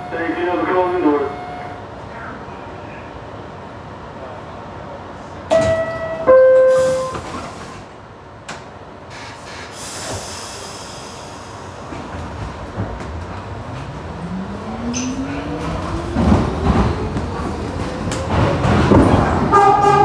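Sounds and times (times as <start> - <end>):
hiss: 9.1 - 11.9.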